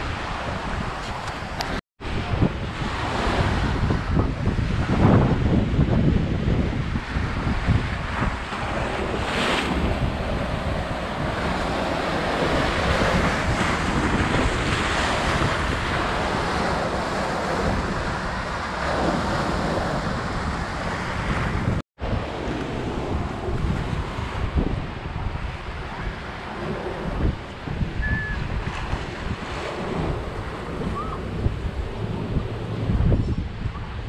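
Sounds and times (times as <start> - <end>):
wind buffeting microphone: 0.0 - 34.0
small waves breaking on beach: 7.0 - 27.8.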